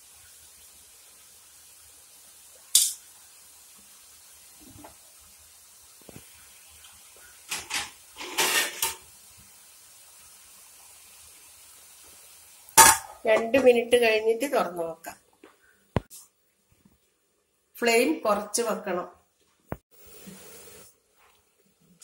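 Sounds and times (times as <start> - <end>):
sauce hissing in a pan: 0.0 - 15.0, 19.9 - 22.0.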